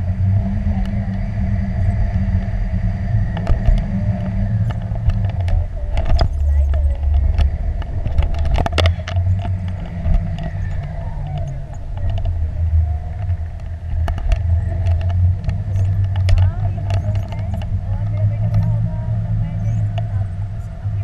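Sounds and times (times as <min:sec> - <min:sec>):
wind rumbling over microphone: 0:00.0 - 0:21.0.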